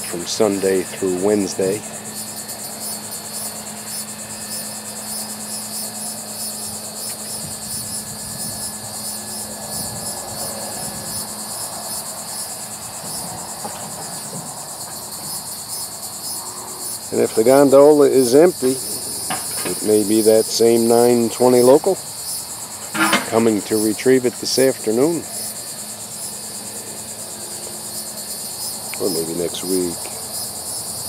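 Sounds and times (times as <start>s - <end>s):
truck engine humming: 0.0s - 11.8s, 16.9s - 30.3s
insects buzzing: 0.0s - 31.0s.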